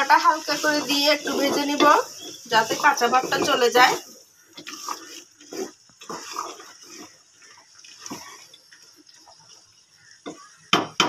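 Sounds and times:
wooden spatula scraping a pot: 0.0 - 10.6
food frying: 0.0 - 11.0
spatula knocking against pot: 10.2 - 11.0.

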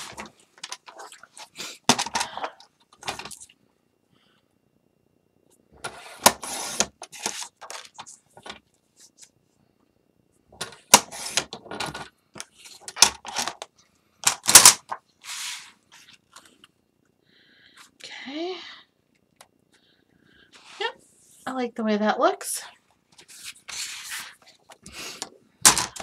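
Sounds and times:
paper scraping and sliding: 5.8 - 8.2, 10.9 - 11.5, 15.2 - 16.2, 23.2 - 24.6.

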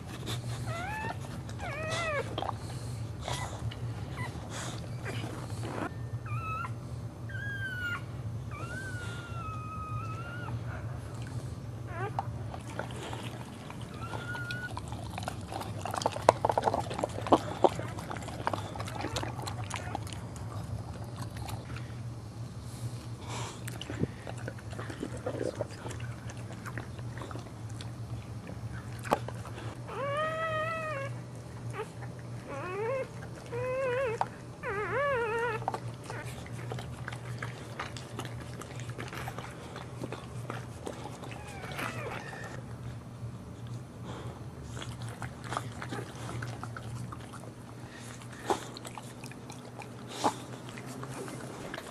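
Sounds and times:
steady low hum: 0.0 - 51.9
dog whining: 0.6 - 2.6, 3.2 - 11.0, 11.8 - 21.8, 29.8 - 42.6.

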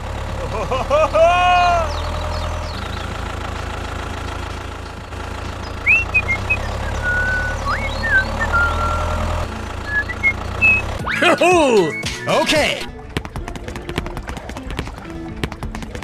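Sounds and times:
tractor engine rumbling: 0.0 - 16.0
high whistled chirps: 5.8 - 12.3.

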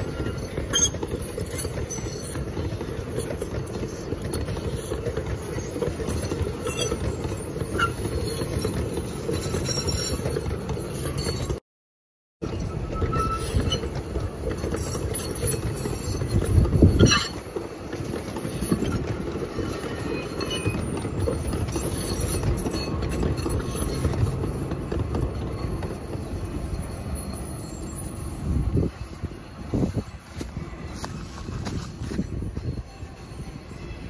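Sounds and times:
rail wagons rumbling on track: 0.0 - 11.6, 12.4 - 34.0.

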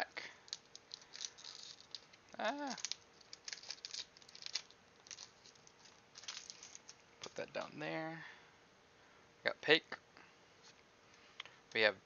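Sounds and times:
foil pack crinkling: 0.4 - 7.8.

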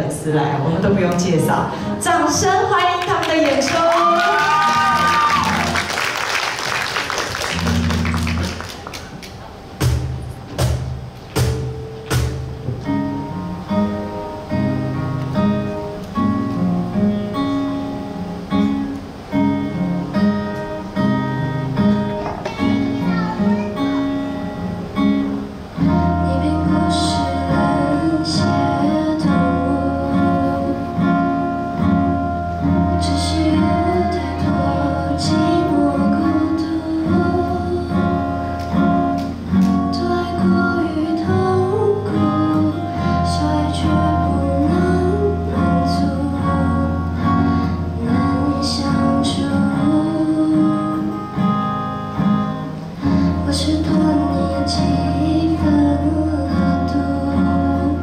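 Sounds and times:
woman singing: 1.3 - 6.0, 25.8 - 31.5, 32.6 - 39.1, 39.7 - 51.7, 53.0 - 58.0
cajon slaps: 7.2 - 12.9, 22.2 - 22.8, 38.6 - 39.8
strummed acoustic guitar: 9.6 - 58.0.

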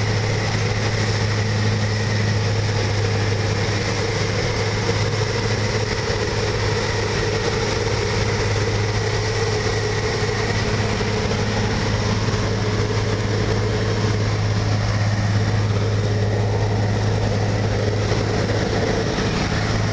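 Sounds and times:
heavy diesel engine drone: 0.0 - 19.9.

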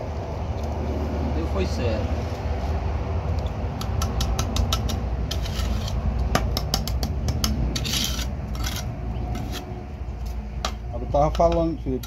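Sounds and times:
steady low rumble: 0.0 - 12.0
trowel tapping and scraping bricks: 3.8 - 12.0.

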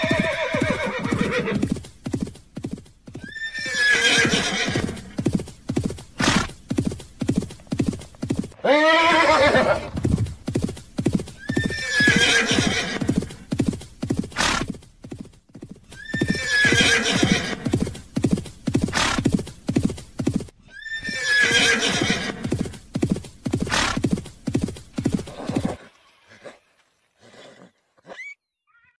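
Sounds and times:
horse whinnying: 0.0 - 1.7, 3.2 - 5.2, 8.6 - 10.1, 11.4 - 13.4, 15.9 - 17.8, 20.6 - 22.6, 25.2 - 26.6, 27.2 - 29.0
horse hooves clip-clopping: 0.0 - 20.6, 21.9 - 27.4.

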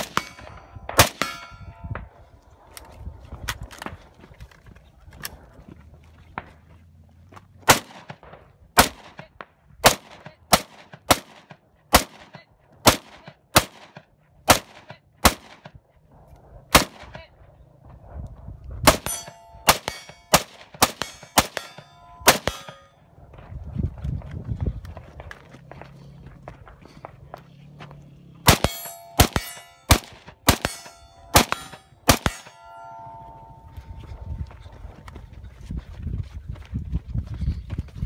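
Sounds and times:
rifle shots: 0.0 - 1.8, 7.6 - 15.8, 16.7 - 17.2, 18.8 - 22.9, 28.4 - 33.1
steel targets ringing: 0.0 - 2.1, 18.9 - 23.0, 28.5 - 34.3.

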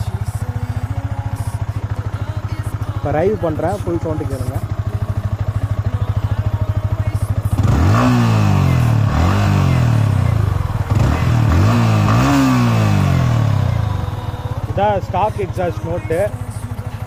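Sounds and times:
motorcycle engine idling and revving: 0.0 - 17.0.

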